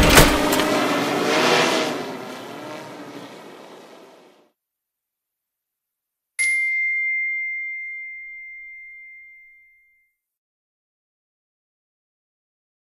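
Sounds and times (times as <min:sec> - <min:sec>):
bright chime ding: 0:06.4 - 0:10.2.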